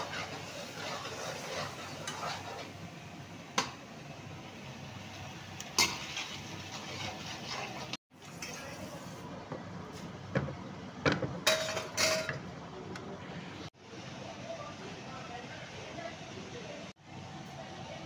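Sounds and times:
spoon stirring and scraping pans: 0.0 - 2.8, 5.6 - 9.1, 11.5 - 12.4.

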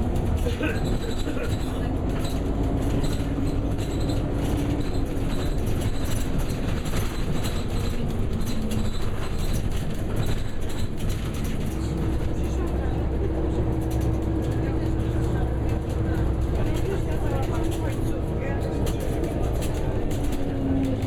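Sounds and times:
vehicle ride rumble: 0.0 - 21.0.

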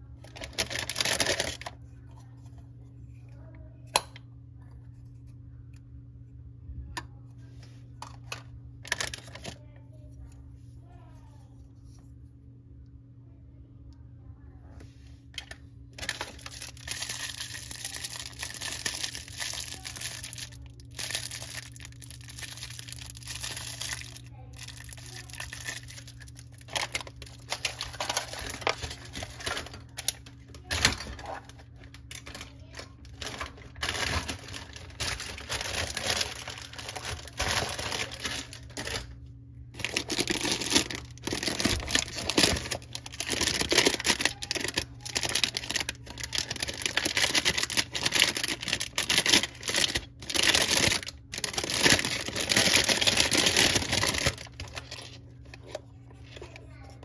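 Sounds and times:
plastic bags crinkling: 0.0 - 1.8, 8.3 - 9.6, 15.4 - 57.0.

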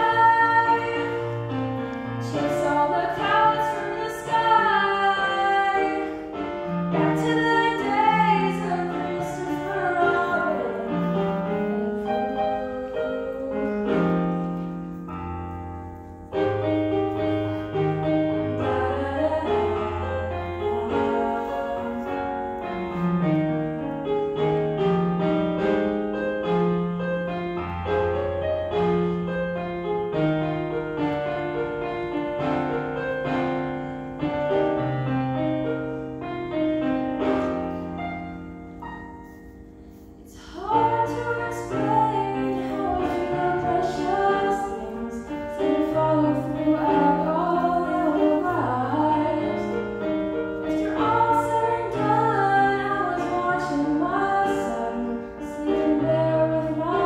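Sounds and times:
woman singing: 0.0 - 1.2, 2.2 - 6.1, 6.9 - 14.3, 18.5 - 22.8, 40.2 - 49.8, 50.7 - 57.0
piano accompaniment: 0.0 - 57.0.

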